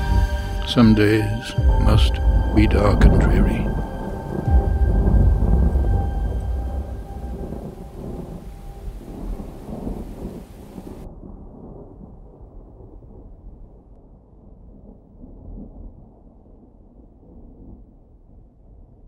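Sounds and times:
low rolling thunder: 0.0 - 17.8
steady rain: 0.0 - 17.8.

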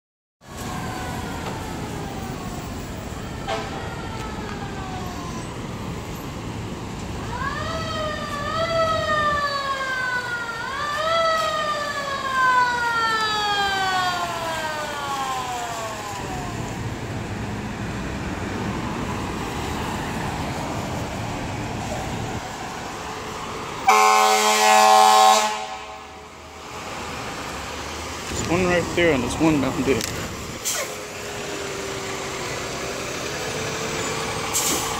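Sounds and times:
city traffic: 0.4 - 34.9
fire engine siren: 0.4 - 34.9
loud air horn blast: 3.4 - 3.8, 23.8 - 26.2.

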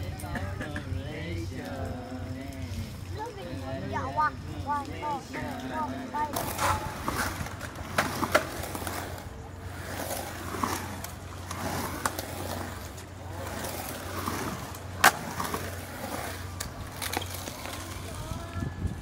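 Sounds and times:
skateboard wheels rumbling: 0.0 - 19.0
skateboard clacks: 5.4 - 19.0.

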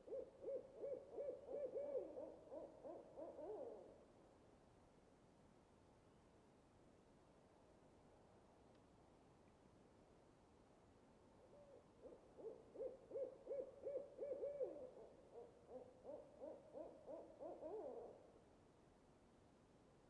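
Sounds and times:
lower owl hoots: 0.0 - 4.0, 11.4 - 18.3
owl hooting: 0.0 - 4.0, 11.4 - 18.2.

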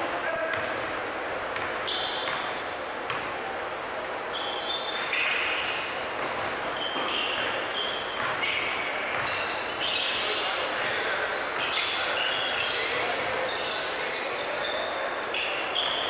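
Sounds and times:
sneakers squeaking on hardwood: 0.2 - 3.2, 4.3 - 16.0
players' voices echoing: 7.1 - 16.0.

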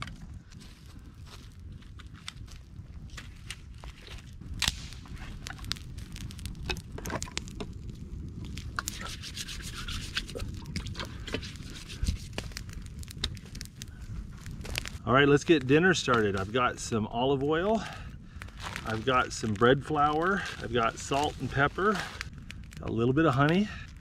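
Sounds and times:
campfire crackling: 0.0 - 24.0
hand rubbing on rock: 8.8 - 10.4, 11.0 - 12.6.

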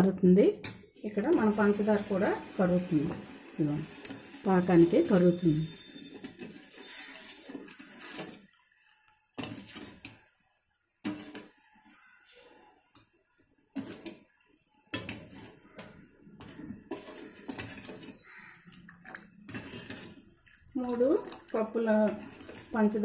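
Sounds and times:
ladle clinking and scraping in pot: 3.9 - 8.6, 9.3 - 10.3, 11.0 - 12.0, 13.7 - 14.3, 14.9 - 18.6, 19.4 - 23.0.

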